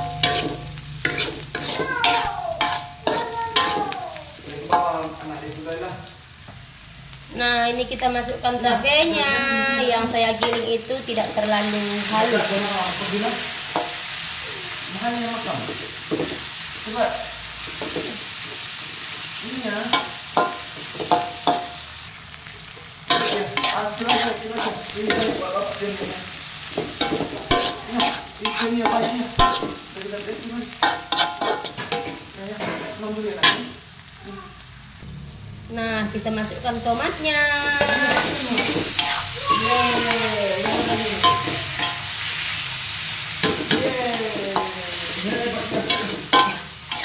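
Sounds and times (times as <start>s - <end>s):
metal spatula scraping a wok: 0.0s - 3.9s, 23.1s - 29.9s, 30.7s - 33.8s, 37.6s - 42.6s, 43.4s - 47.0s
food sizzling in oil: 0.0s - 47.0s.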